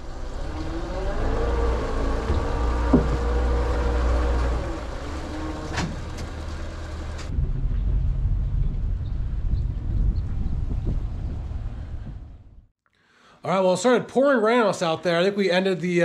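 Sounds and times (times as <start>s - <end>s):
road noise from towed boat: 0.0s - 8.9s
sharp knock: 2.3s - 3.3s.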